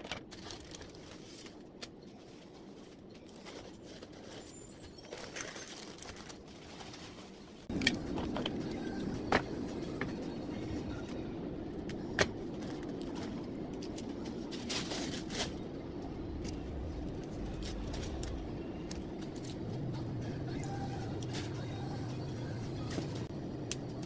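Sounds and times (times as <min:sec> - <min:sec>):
paper rustling: 0:00.0 - 0:07.8.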